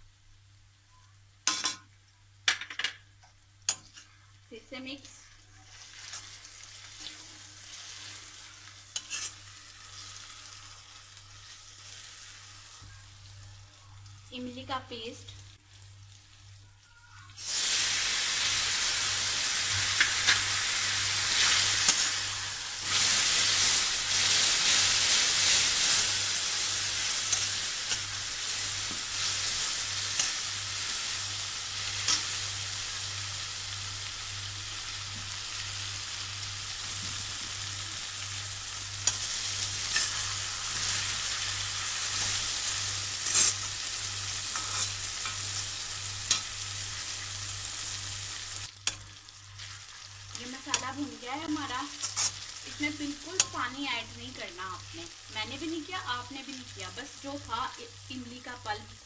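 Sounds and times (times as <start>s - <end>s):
paste sizzling in hot oil: 5.5s - 13.4s, 17.2s - 59.0s
metal spatula scraping pan: 9.0s - 9.4s.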